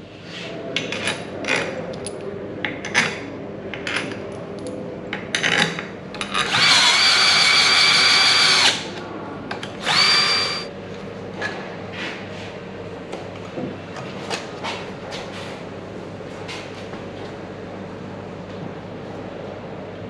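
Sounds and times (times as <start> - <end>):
power drill spinning: 6.4 - 8.8, 9.8 - 10.7.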